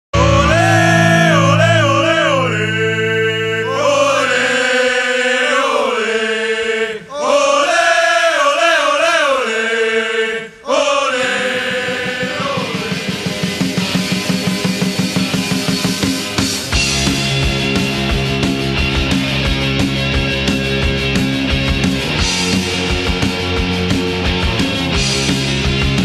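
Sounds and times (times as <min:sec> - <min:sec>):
voices chanting in unison: 0:00.2 - 0:14.2.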